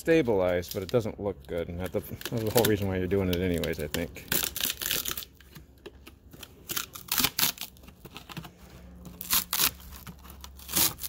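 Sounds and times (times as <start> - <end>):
plywood ripping and cracking: 1.6 - 5.4, 6.6 - 7.8, 9.1 - 11.0.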